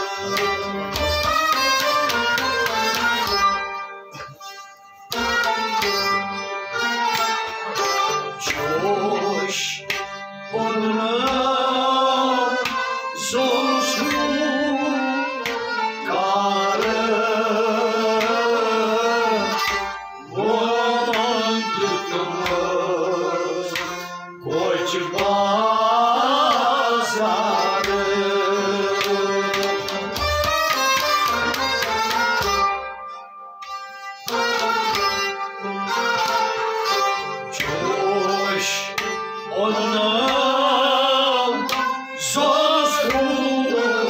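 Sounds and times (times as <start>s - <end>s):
harmonium: 0.0s - 44.0s
man singing devotional poetry: 8.4s - 30.2s, 37.4s - 44.0s.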